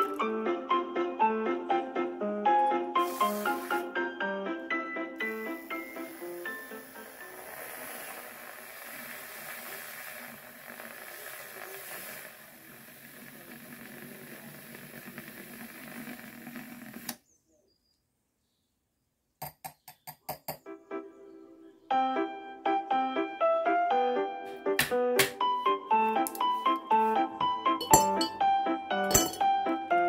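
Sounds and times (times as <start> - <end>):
milk frother whirring: 3.0 - 3.9, 5.2 - 17.2.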